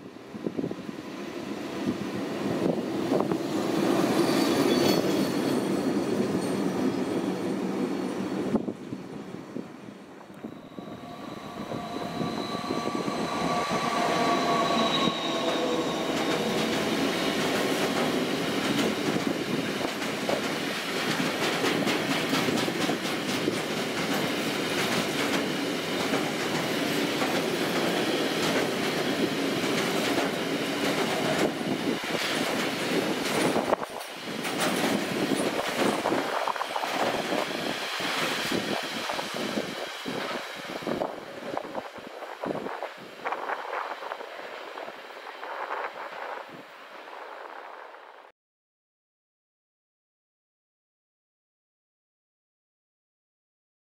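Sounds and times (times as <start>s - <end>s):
freight train passing: 0.0s - 48.3s
high whining tones: 10.2s - 18.5s.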